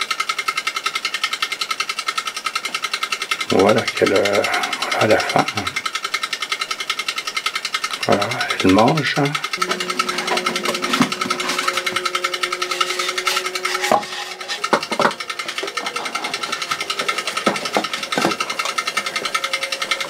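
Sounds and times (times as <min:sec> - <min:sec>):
small motor ticking: 0:00.0 - 0:20.0.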